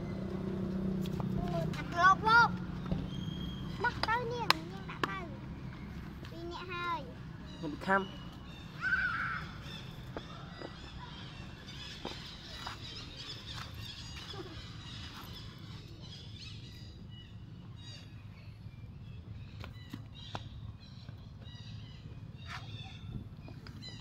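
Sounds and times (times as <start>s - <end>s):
faint high chirping calls: 2.8s - 4.4s, 5.4s - 24.0s.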